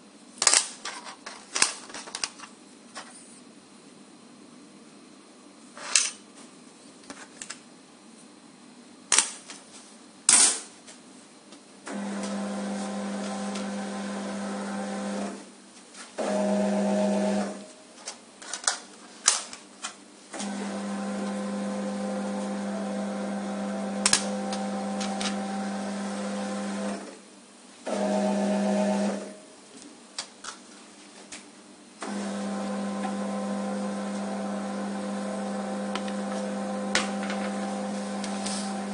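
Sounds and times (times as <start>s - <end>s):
conveyor motor humming: 11.8s - 15.4s, 20.3s - 27.2s, 27.8s - 29.5s, 32.0s - 38.9s.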